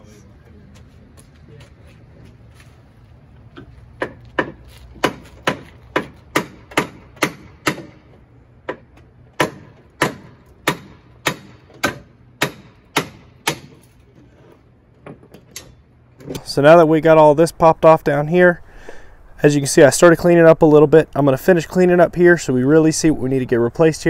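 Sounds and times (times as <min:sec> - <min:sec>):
hammer striking sheet steel: 0:04.0 - 0:08.1, 0:08.7 - 0:14.0.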